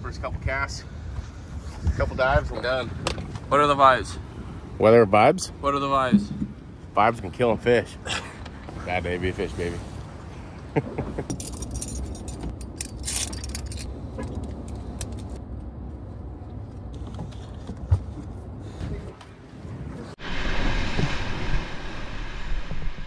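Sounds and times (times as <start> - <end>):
water noise: 4.6 - 7.0, 20.1 - 23.0
vehicle rumble: 10.0 - 23.0
light rattling and clinking: 11.3 - 13.9
wind noise: 19.8 - 23.0.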